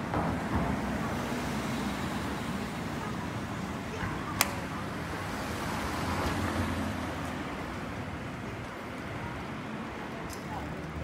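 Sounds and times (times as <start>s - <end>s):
street traffic rumble: 0.0s - 11.0s
sharp click: 4.4s - 4.6s.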